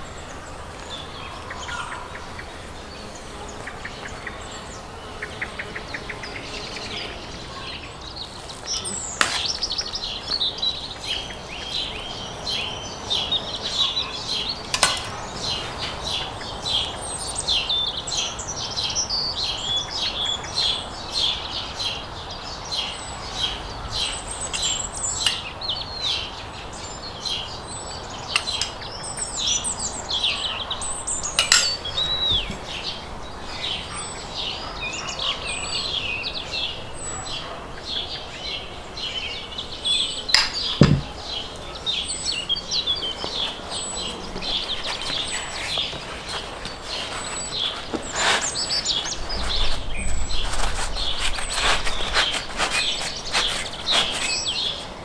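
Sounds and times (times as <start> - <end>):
small birds chirping: 0.0 - 55.0
utensils and dishes clinking: 31.3 - 32.1.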